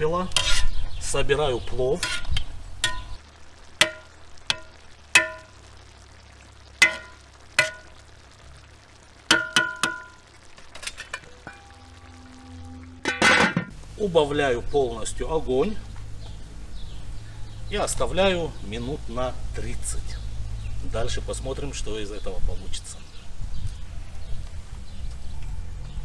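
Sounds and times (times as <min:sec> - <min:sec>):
metal skimmer tapping iron pot: 0:02.0 - 0:03.2, 0:03.8 - 0:05.6, 0:06.8 - 0:08.0, 0:09.3 - 0:11.8, 0:13.0 - 0:13.7
metal lid clattering onto pot: 0:13.0 - 0:13.7.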